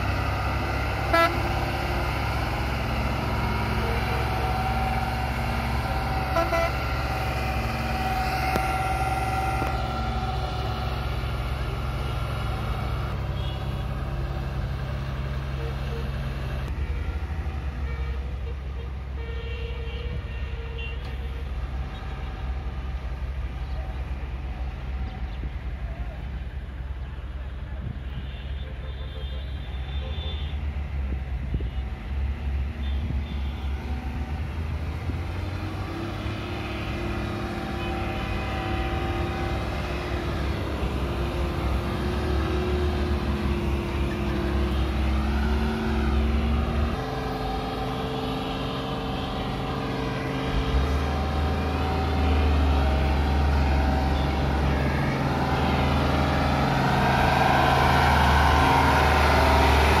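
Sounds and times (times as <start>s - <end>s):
diesel truck engine pulling away: 0.0s - 17.8s, 30.6s - 60.0s.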